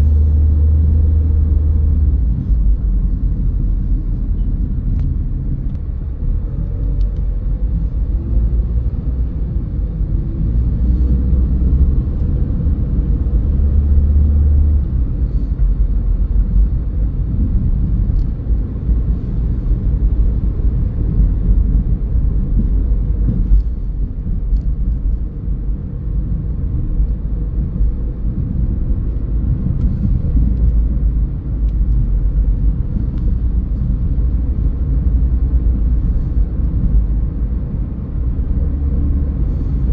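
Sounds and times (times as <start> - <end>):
engine and tyre rumble: 0.0 - 39.9.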